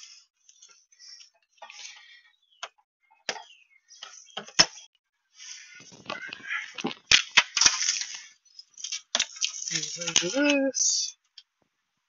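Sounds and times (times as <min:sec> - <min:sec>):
rustling and scraping: 0:05.4 - 0:10.7.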